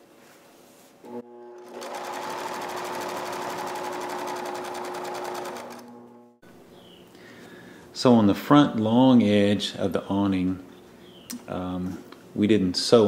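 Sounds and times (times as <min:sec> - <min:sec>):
electric sewing machine stitching: 0:01.1 - 0:06.4.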